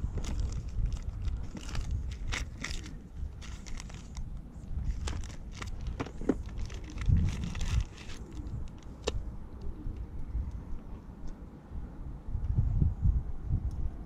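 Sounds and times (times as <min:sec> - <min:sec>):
plastic packets crinkling: 0:00.0 - 0:09.1
low rumble: 0:00.0 - 0:14.0.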